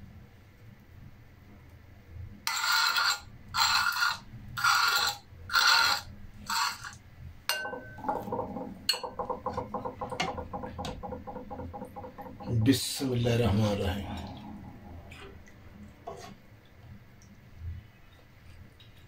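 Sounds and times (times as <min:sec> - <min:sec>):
metal spoon scraping stone: 0:02.5 - 0:07.0
spoon clinking glass bowl: 0:07.5 - 0:09.6.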